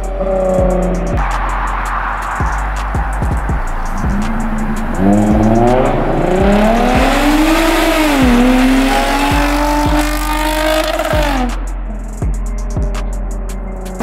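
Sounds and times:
car engine accelerating past: 4.0s - 11.5s.

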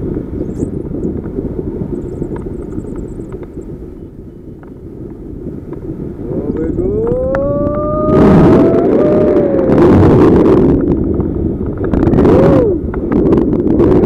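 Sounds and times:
wind buffeting microphone: 0.0s - 14.0s
person whooping: 6.8s - 10.0s, 12.2s - 12.8s.

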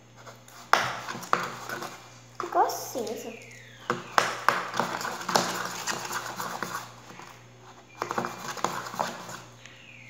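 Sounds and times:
spoon stirring thick slime: 0.0s - 9.6s.

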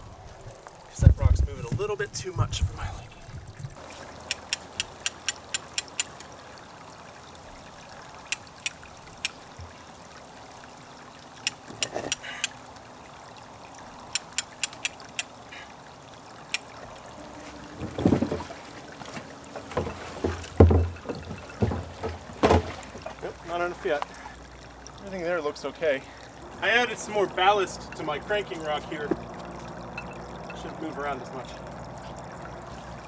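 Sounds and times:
water trickling: 0.0s - 33.0s
winch ratchet clicking: 4.3s - 6.3s, 14.1s - 15.3s.

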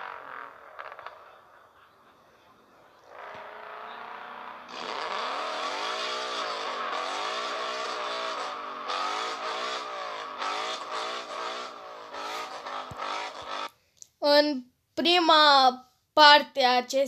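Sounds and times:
car engine revving: 0.0s - 13.7s
tyres squealing: 3.2s - 13.7s.

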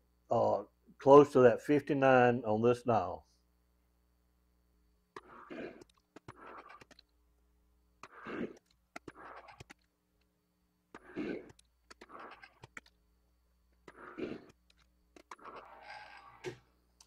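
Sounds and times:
small clicks: 11.5s - 13.0s.

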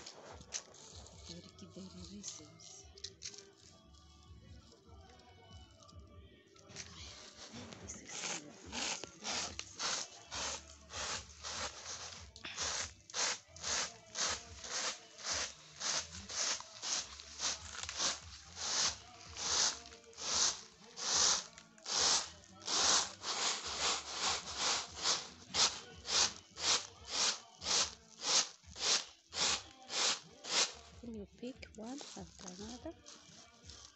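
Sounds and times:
dry beans rattling in tray: 8.1s - 30.9s.

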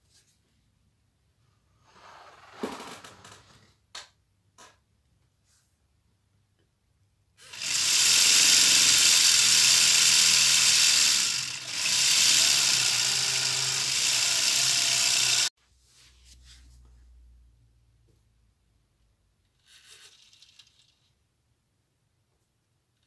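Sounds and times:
toy engine rattling buzz: 7.4s - 15.5s, 19.7s - 21.1s.

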